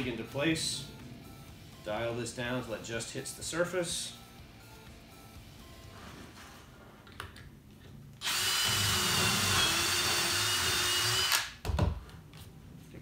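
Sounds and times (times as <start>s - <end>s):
cordless drill boring wood: 8.2s - 11.5s.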